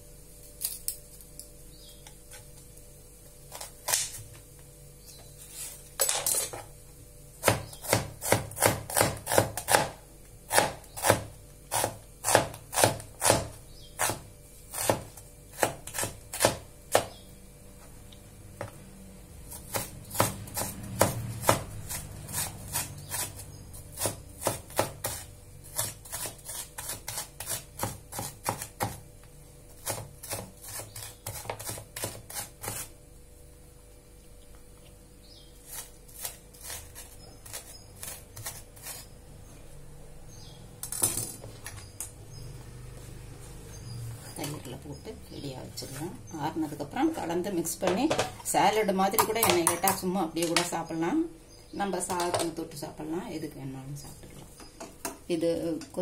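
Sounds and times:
knife chopping on wooden board: 7.4s - 17.2s, 19.5s - 29.0s, 29.8s - 32.9s.

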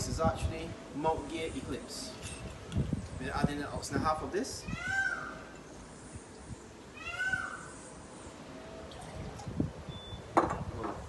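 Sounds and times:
animal calls rising and falling: 6.9s - 9.5s.

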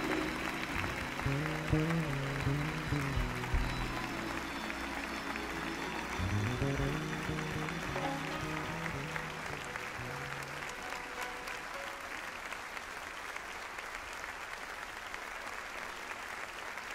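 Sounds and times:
low bass notes: 0.0s - 10.7s
audience applause: 0.0s - 16.9s.

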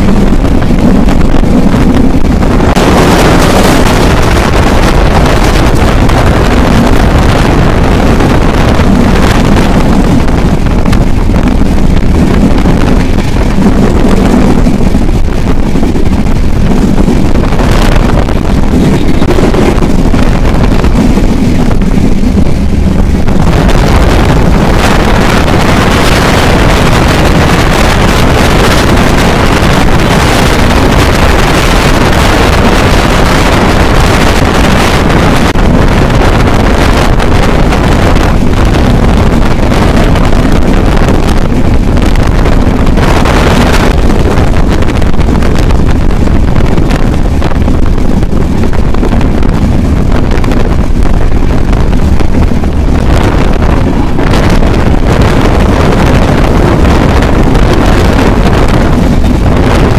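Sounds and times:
train rumbling on track: 0.0s - 59.9s
wind buffeting microphone: 0.0s - 59.9s.

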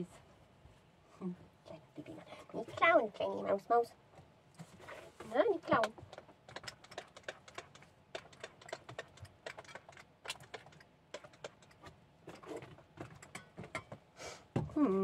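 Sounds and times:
kibble clinking in steel bowls: 6.5s - 14.0s.

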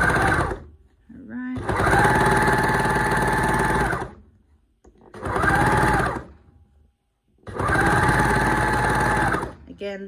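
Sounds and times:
overlocker stitching: 1.6s - 4.2s, 5.0s - 6.4s, 7.4s - 9.6s.

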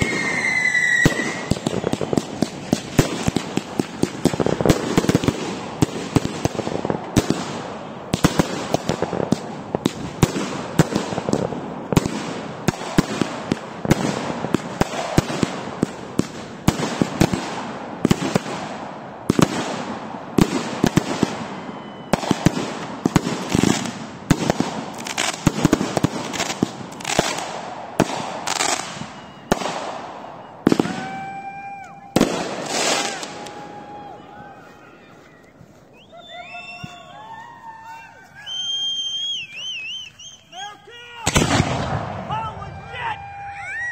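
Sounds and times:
fireworks bangs and crackles: 0.0s - 40.4s, 41.2s - 43.9s
fireworks whistling: 0.0s - 43.9s.

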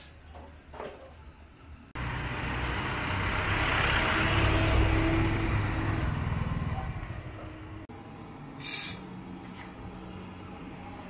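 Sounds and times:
vehicle driving past: 2.0s - 7.9s.

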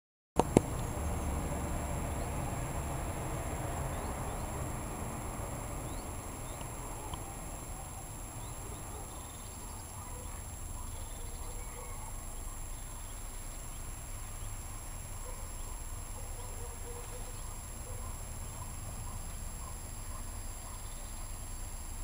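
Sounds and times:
low outdoor rumble: 0.4s - 22.0s
faint high chirps: 5.8s - 21.6s.

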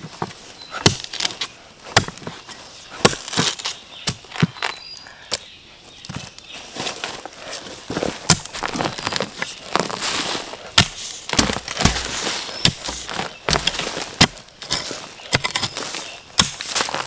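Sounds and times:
dry plant litter crunching: 6.1s - 17.0s.

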